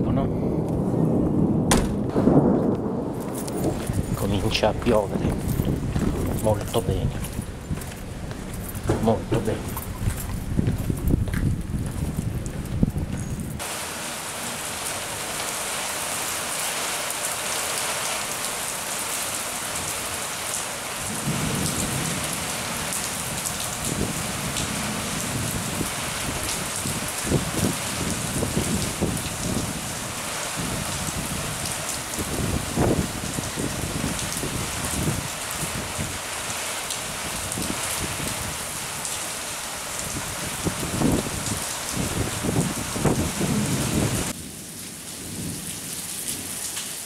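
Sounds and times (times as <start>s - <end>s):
steady rain falling: 0.2s - 47.0s
low rumbles and thumps: 0.6s - 13.6s.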